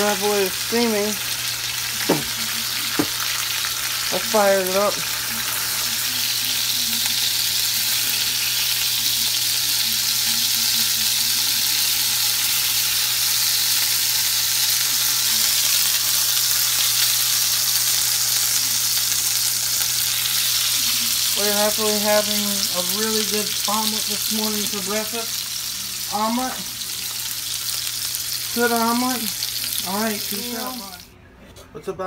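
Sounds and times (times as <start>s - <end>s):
eggs sizzling in a pan: 0.0s - 31.1s.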